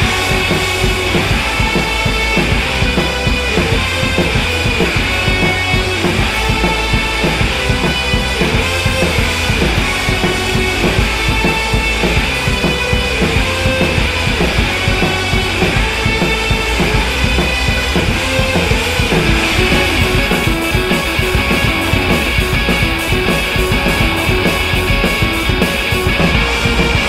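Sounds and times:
rock music with drums: 0.0s - 27.0s.

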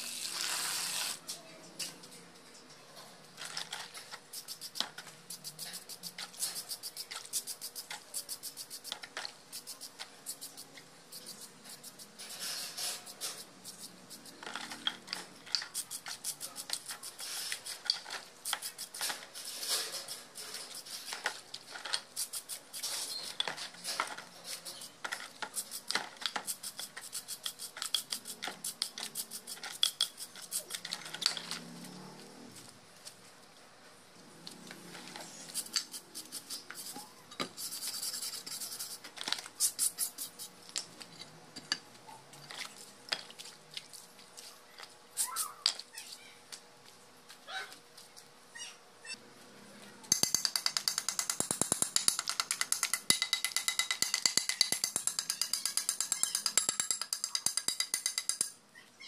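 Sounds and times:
brush scrubbing metal parts: 3.4s - 31.5s, 34.9s - 41.3s.

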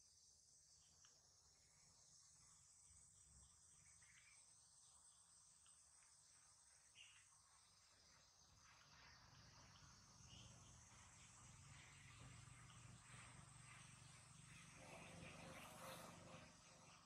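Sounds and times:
insects chirring: 0.1s - 16.8s
faint soft clicks: 5.6s - 5.8s.

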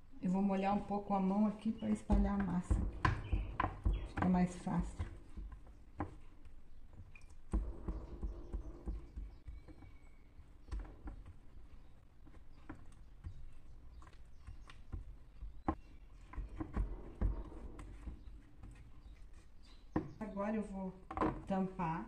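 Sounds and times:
hands patting dough: 1.4s - 20.3s.

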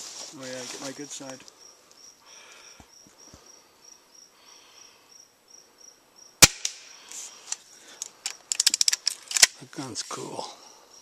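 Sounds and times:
insect chirping: 0.0s - 11.0s
airgun shot: 6.4s - 6.9s.

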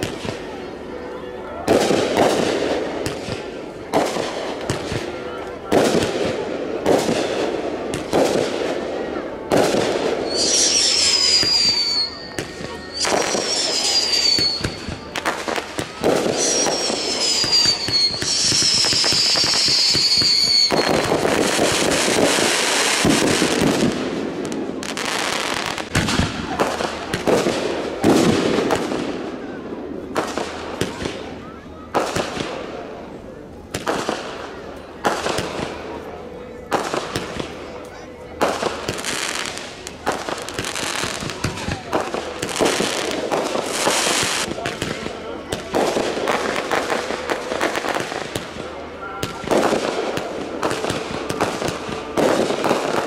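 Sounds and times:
fireworks bangs: 0.0s - 37.7s, 38.3s - 53.0s
falling firework whistles: 9.5s - 24.0s, 38.5s - 45.0s
firework hiss: 9.6s - 29.2s, 38.4s - 48.6s.

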